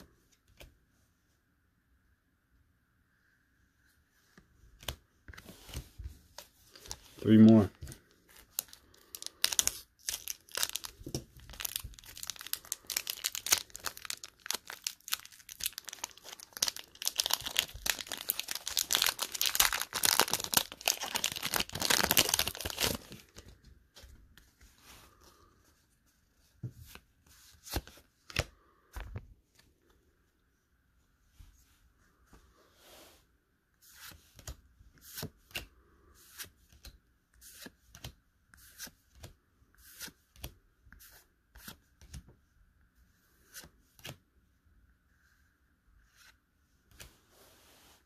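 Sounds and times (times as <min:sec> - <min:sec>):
foil wrapper crinkling and tearing: 0:08.6 - 0:23.2.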